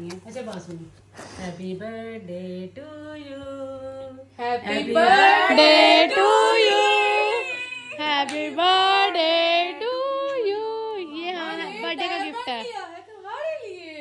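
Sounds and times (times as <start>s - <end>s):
women singing long held notes: 1.4s - 12.4s.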